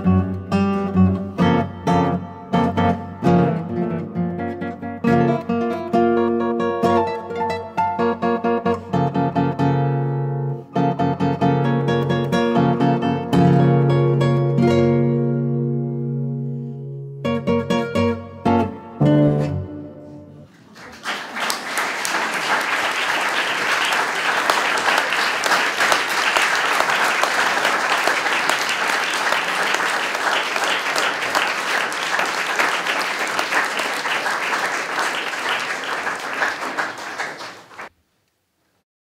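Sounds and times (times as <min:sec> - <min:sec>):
classical guitars chord: 0:00.0 - 0:20.5
audience applause: 0:20.5 - 0:37.9.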